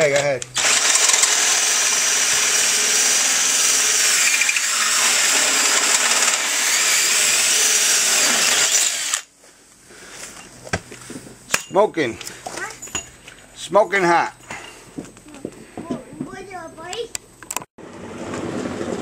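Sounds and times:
hole saw screeching through metal: 0:00.5 - 0:09.2.

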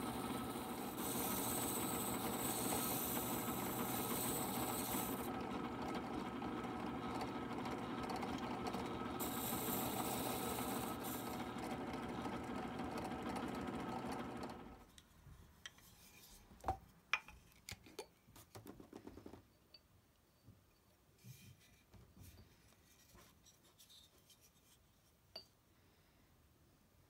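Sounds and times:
drill press motor hum: 0:00.0 - 0:14.8.

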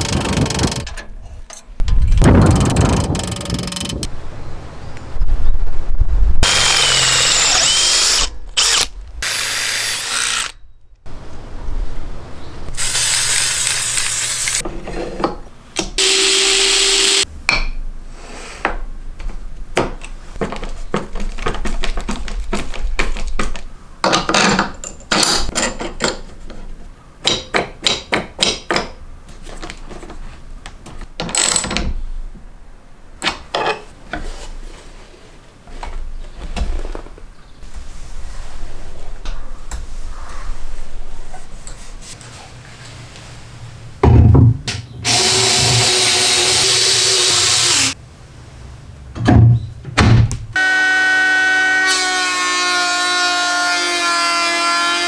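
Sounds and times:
electric drill boring through steel: 0:06.4 - 0:10.6, 0:16.0 - 0:17.2, 0:45.1 - 0:48.0.

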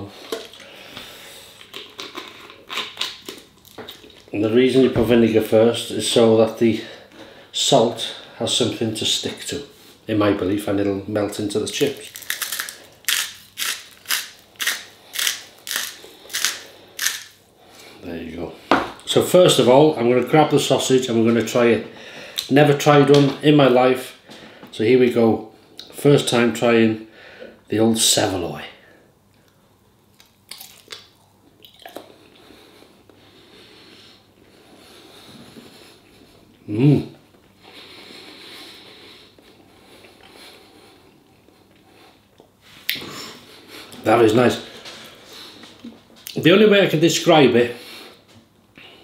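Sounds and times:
chewing with mouth closed: 0:01.5 - 0:04.3, 0:30.2 - 0:32.4
person biting into sausage: 0:01.6 - 0:04.2, 0:11.9 - 0:17.4
salt grinder crunching: 0:11.8 - 0:17.4.

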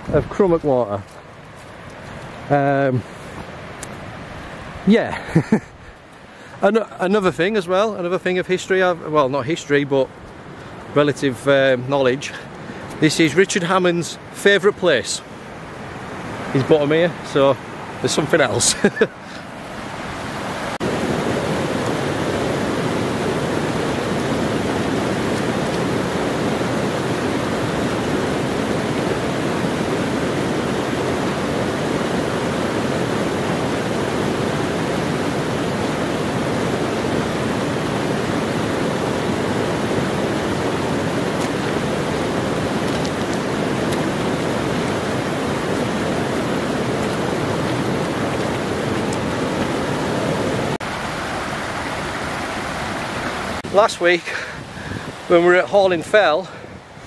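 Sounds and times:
stream rushing over stones: 0:00.0 - 0:57.0.

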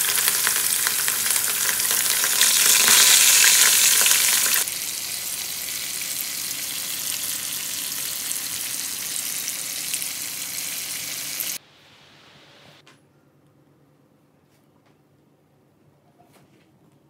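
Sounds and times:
fish sizzling in oil: 0:00.0 - 0:11.6.

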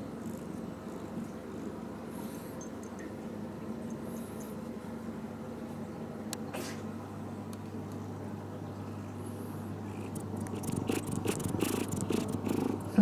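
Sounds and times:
cat purring: 0:00.1 - 0:02.5, 0:09.2 - 0:13.0.

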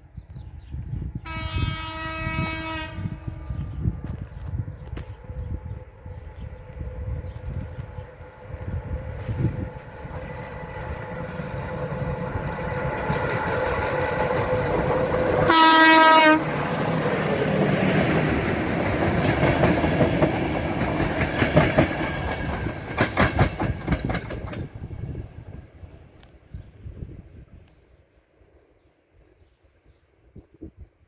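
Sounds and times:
train horn blast: 0:01.2 - 0:03.8, 0:15.4 - 0:16.6
train wheels clickety-clack: 0:12.6 - 0:15.6, 0:17.4 - 0:24.8.

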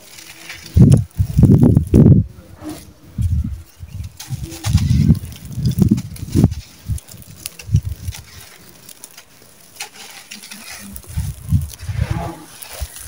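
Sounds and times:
crumbs pattering down: 0:00.0 - 0:13.0
dry dirt crunching in hands: 0:00.0 - 0:13.0.

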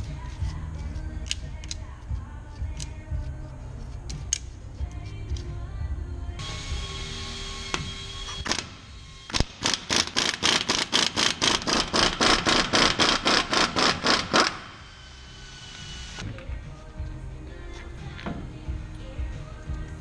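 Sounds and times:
pneumatic impact wrench hammering: 0:07.6 - 0:14.8.

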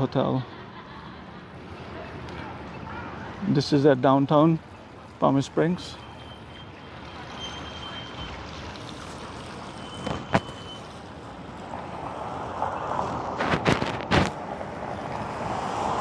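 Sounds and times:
car approaching: 0:00.0 - 0:16.0.

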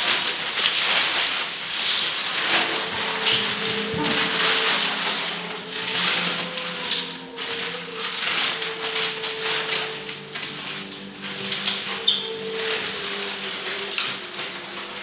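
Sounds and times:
paper rustling and crumpling: 0:00.0 - 0:15.0
low hum: 0:02.3 - 0:13.8.

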